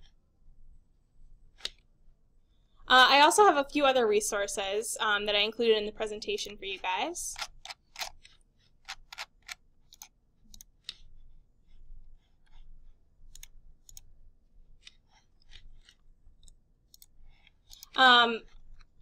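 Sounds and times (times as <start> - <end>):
computer mouse clicking: 1.6 - 1.9, 7.4 - 14.1, 14.8 - 19.0.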